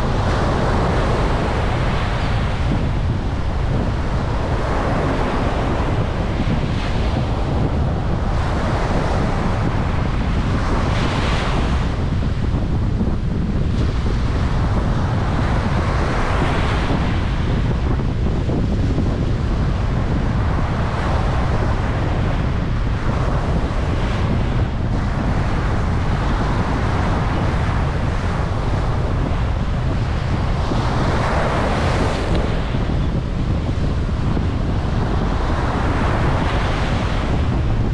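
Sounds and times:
wind on microphone: 0:00.0 - 0:37.9
small waves breaking on sand: 0:19.4 - 0:37.9.

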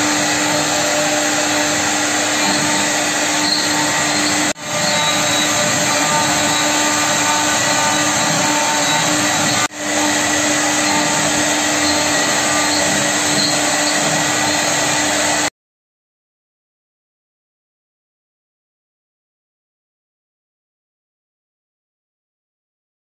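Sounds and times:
woodworking machinery running: 0:00.0 - 0:15.5.

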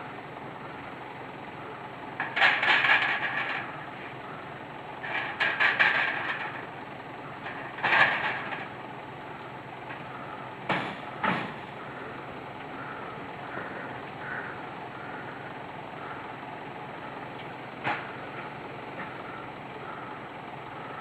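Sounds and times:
steady background noise: 0:00.0 - 0:21.0
clattering and scraping: 0:02.2 - 0:03.8, 0:05.0 - 0:06.7, 0:07.4 - 0:08.7.

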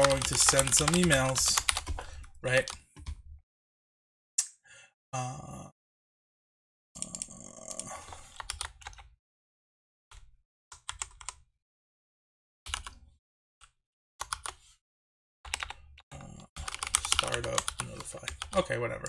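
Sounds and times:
typing on computer keyboard: 0:00.0 - 0:03.2, 0:08.3 - 0:09.1, 0:10.8 - 0:11.4, 0:12.7 - 0:13.0, 0:14.2 - 0:14.6, 0:15.5 - 0:15.8, 0:16.6 - 0:18.7.

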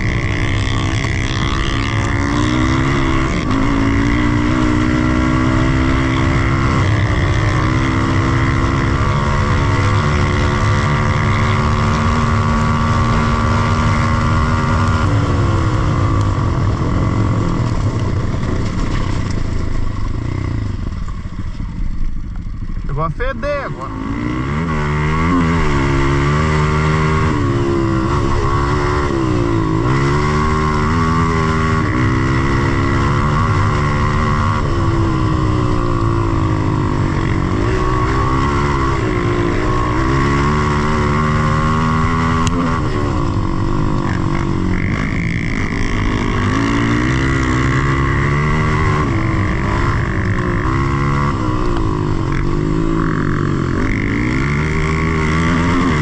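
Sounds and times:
dirt bike engine revving: 0:00.0 - 0:21.3, 0:22.6 - 0:56.0.

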